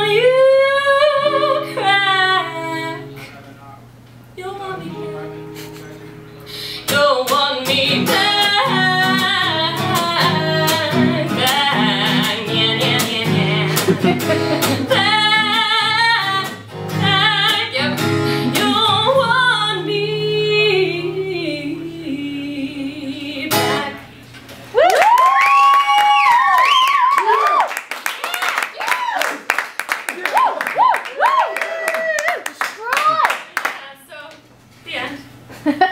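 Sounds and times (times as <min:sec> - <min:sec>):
woman singing: 0:00.0 - 0:03.2, 0:04.4 - 0:05.4, 0:06.8 - 0:24.1
strummed acoustic guitar: 0:04.6 - 0:21.2, 0:23.4 - 0:24.1.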